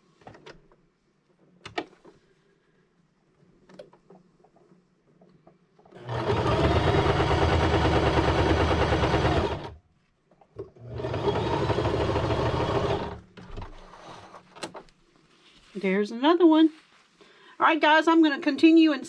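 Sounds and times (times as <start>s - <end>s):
sewing machine stitching: 5.9s - 9.8s, 10.8s - 13.2s.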